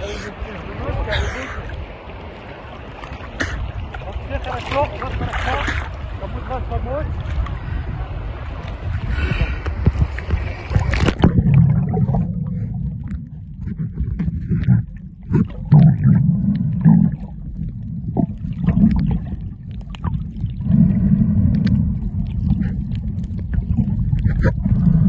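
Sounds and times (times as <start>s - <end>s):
underwater rumbling wash: 0.0s - 25.0s
underwater clicks and crackles: 2.8s - 6.1s, 7.1s - 7.8s, 8.4s - 25.0s
splash: 3.0s - 6.0s.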